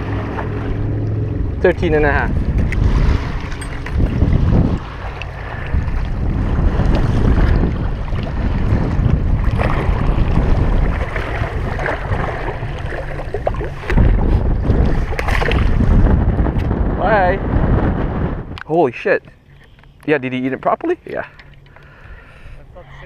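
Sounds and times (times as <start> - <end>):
wind buffeting microphone: 0.0 - 19.4.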